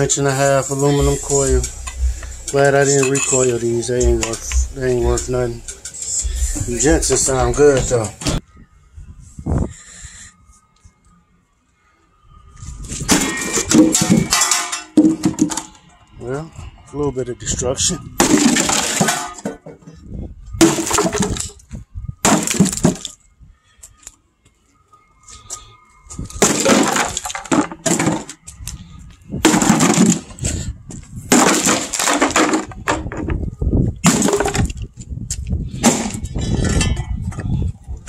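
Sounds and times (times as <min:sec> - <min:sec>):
wooden cabinets smashing: 0:13.1 - 0:15.8, 0:18.2 - 0:19.8, 0:20.6 - 0:21.6, 0:22.2 - 0:23.2, 0:26.4 - 0:28.5, 0:29.4 - 0:30.7, 0:31.3 - 0:33.4, 0:34.0 - 0:34.9, 0:35.8 - 0:36.7.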